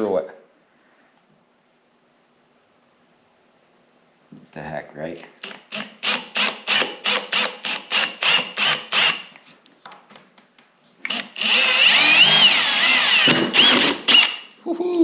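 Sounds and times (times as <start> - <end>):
cordless drill boring through metal: 5.2 - 9.3, 11.1 - 14.5.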